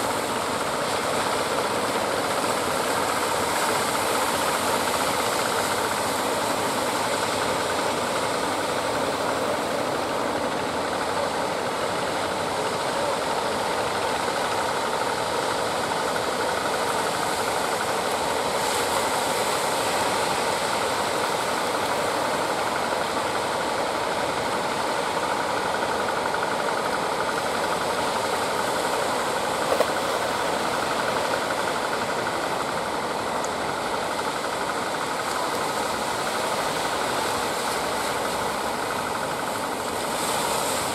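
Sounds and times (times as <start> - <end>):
boat motors clattering: 0.0 - 40.9.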